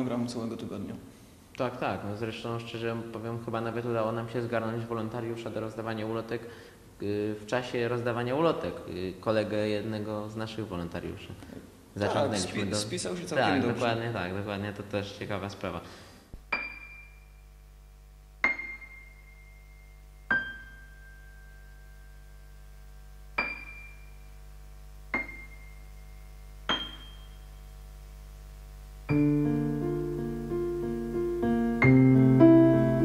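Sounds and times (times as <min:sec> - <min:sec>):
slow piano music: 0:18.4 - 0:24.0, 0:29.1 - 0:33.0.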